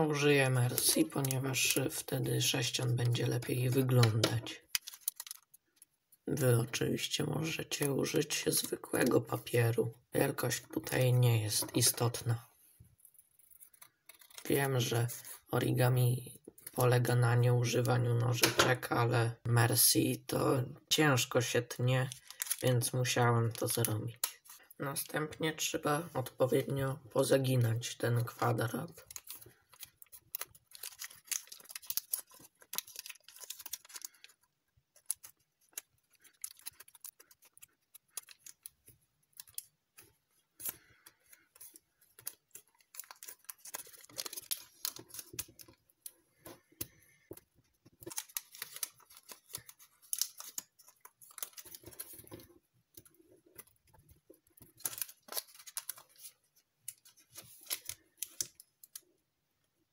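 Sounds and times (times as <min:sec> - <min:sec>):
foil paper crinkling: 0:04.0 - 0:05.8, 0:13.3 - 0:14.9, 0:22.0 - 0:24.7, 0:28.6 - 0:59.1.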